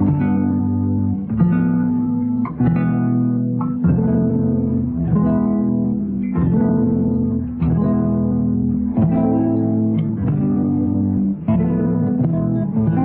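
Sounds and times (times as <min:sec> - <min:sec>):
plucked string chords: 0:00.0 - 0:13.0.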